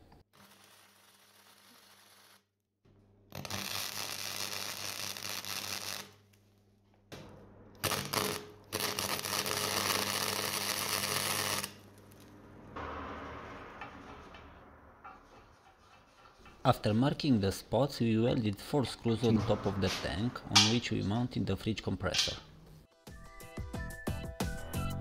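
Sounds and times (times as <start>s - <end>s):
welding arc crackling and sizzling: 0.0s - 2.6s, 3.3s - 6.4s, 7.8s - 12.4s
low hum: 11.8s - 17.8s.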